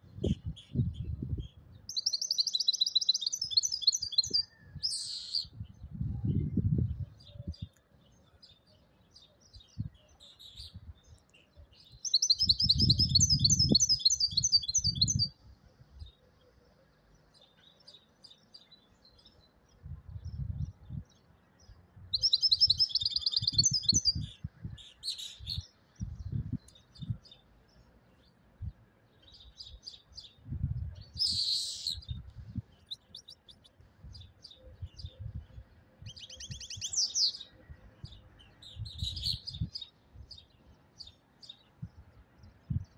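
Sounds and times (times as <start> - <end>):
goldfinch singing: 1.8 - 5.5, 11.8 - 15.4, 22.1 - 25.8, 36.0 - 41.7.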